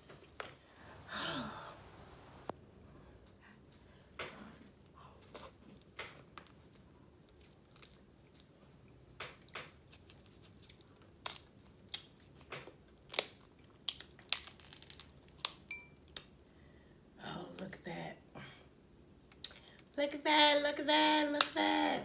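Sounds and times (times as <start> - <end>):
crab shells cracking: 9.2 - 16.3.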